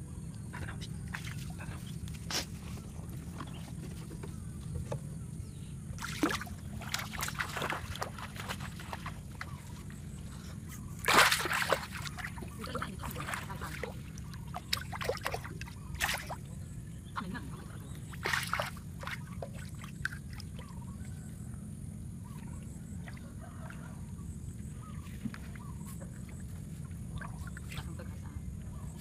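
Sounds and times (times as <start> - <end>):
fish splashing at water surface: 6.0 - 9.6, 11.0 - 16.5, 18.0 - 20.7.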